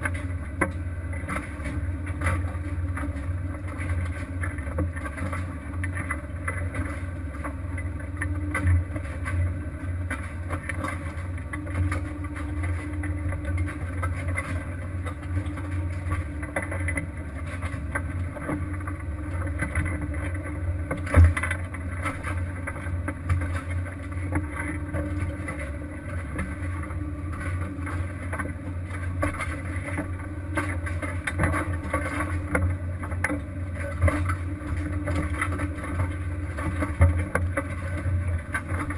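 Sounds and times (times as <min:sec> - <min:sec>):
boat engine running: 0:00.0 - 0:38.9.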